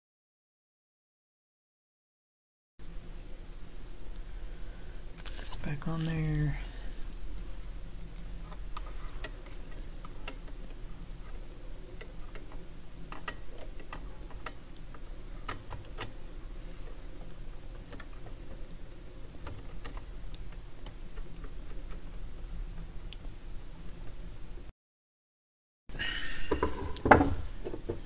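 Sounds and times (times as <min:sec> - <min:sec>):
steady low hum: 0:02.8 - 0:24.7.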